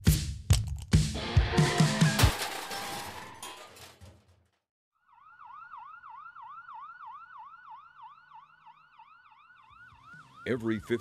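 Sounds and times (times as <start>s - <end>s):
emergency siren yelping: 5.0s - 11.0s.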